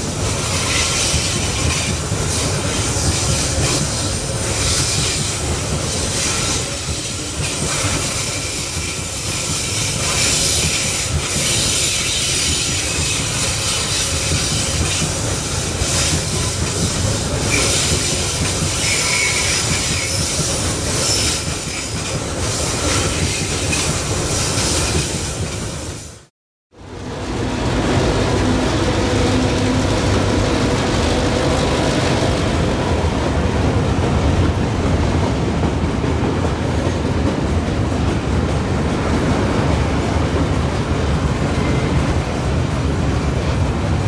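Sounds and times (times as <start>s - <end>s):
train wheels rumbling and clattering: 0.0s - 44.0s
high wheel squeal: 4.4s - 14.8s, 18.8s - 23.8s.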